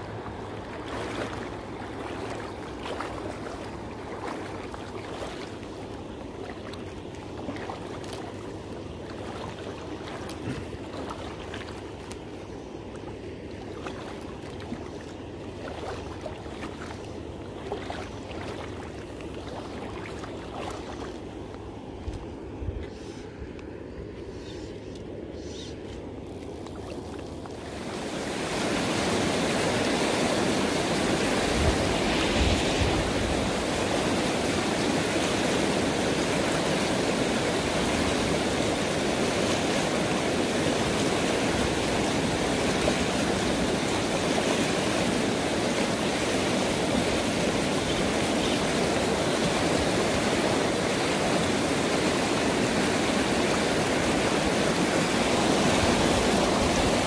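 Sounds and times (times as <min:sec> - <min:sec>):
river water rushing over rocks: 0:00.0 - 0:21.7, 0:27.2 - 0:57.0.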